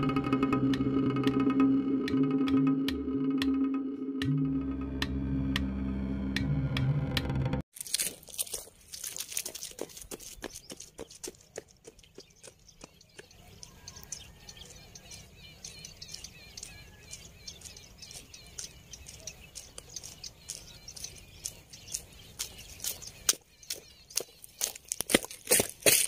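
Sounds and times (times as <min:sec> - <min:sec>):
footsteps on asphalt: 0:07.8 - 0:14.6, 0:16.1 - 0:26.0
birds chirping: 0:08.3 - 0:26.0.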